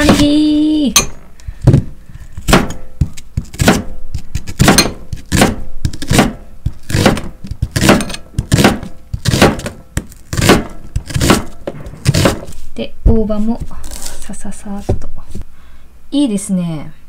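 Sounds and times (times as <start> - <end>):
knife slicing onion on board: 2.4 - 12.6.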